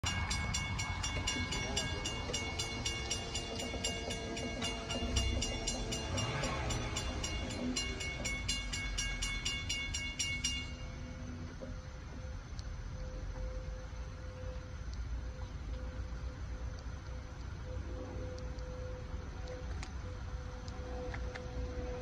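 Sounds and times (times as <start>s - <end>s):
crossing warning bell ringing: 0.0s - 11.5s
low rumble: 0.0s - 22.0s.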